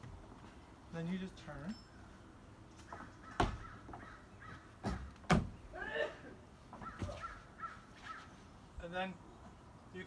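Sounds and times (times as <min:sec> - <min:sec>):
animal calling: 0:02.9 - 0:04.8, 0:06.7 - 0:08.4
feet stamping on wooden deck: 0:02.9 - 0:05.6.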